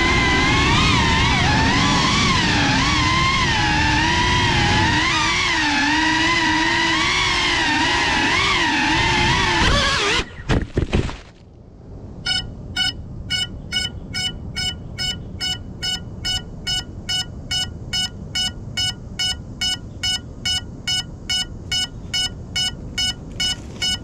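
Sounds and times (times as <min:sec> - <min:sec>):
short high beeps: 0:12.3 - 0:24.0.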